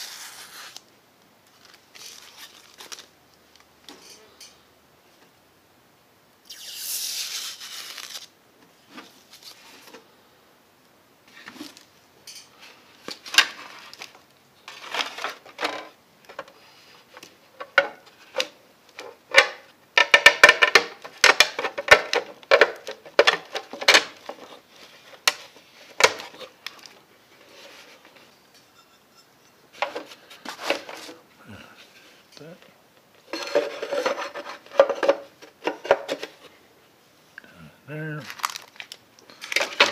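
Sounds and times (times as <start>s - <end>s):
rustle: 6.4s - 10.2s.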